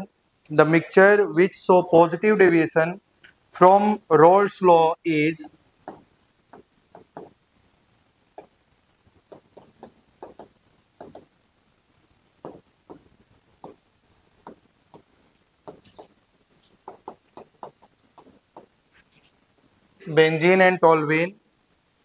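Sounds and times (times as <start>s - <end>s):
writing taps on a board: 5.9s - 7.4s, 9.3s - 11.3s, 12.4s - 13.0s, 14.4s - 16.1s, 16.8s - 18.7s.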